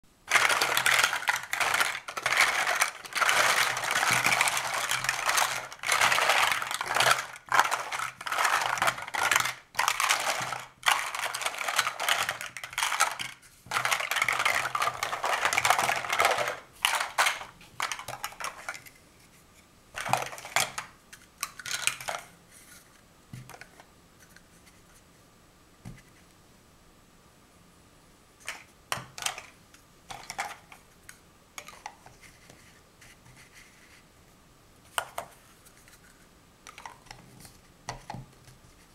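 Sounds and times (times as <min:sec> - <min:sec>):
plastic blocks knocking down: 0:00.2 - 0:18.8, 0:20.0 - 0:22.3, 0:28.5 - 0:30.7
plastic blocks clattering: 0:00.2 - 0:18.9, 0:20.0 - 0:22.3, 0:28.4 - 0:30.8, 0:31.6 - 0:32.1, 0:36.7 - 0:37.3.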